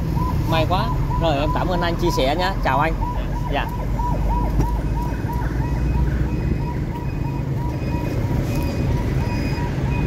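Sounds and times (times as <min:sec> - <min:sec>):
highway traffic rumble: 0:00.0 - 0:10.0
electronic alarm chirping: 0:03.0 - 0:10.0.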